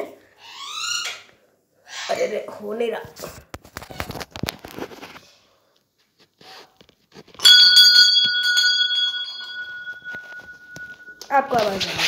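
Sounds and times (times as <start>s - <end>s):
handling knocks and rustles: 6.9s - 12.0s
metal bell ringing: 7.4s - 12.0s.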